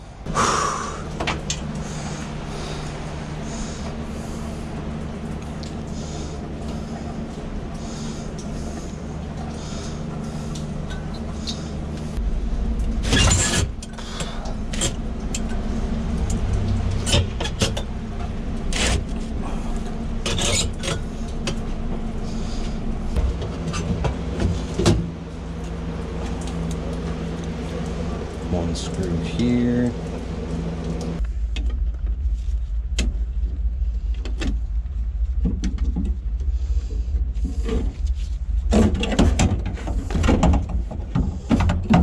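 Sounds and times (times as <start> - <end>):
low machine hum: 0.0 - 42.0
connectors and metal panels clattering: 12.7 - 22.1.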